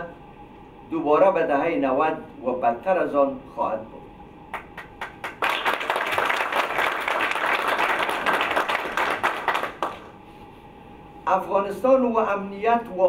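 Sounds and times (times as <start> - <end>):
audience applauding: 4.5 - 10.2.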